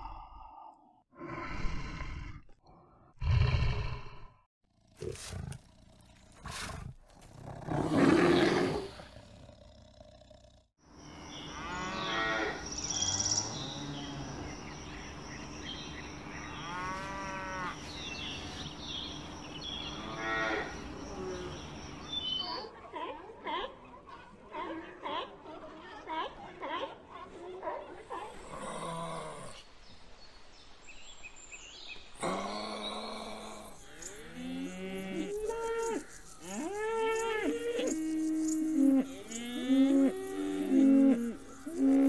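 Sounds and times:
birds singing: 0:11.0 - 0:22.8.

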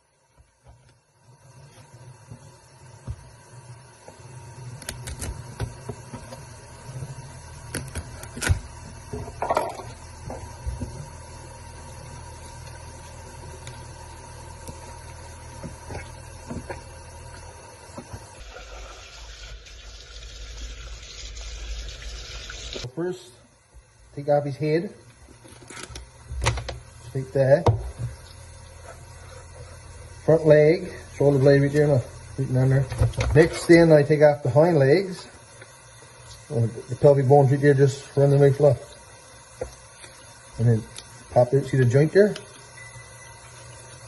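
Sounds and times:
faucet running water into sink: 0:18.4 - 0:22.9.

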